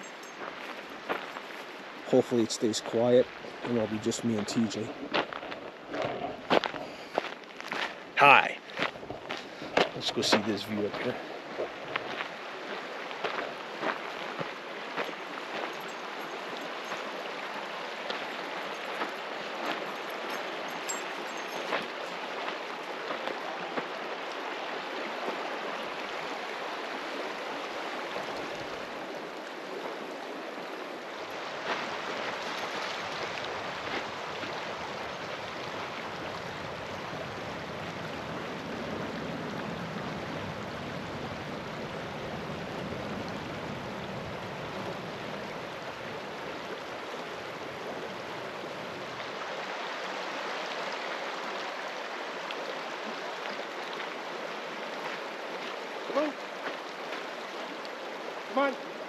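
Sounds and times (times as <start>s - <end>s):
river flowing over rocks: 0.0s - 59.0s.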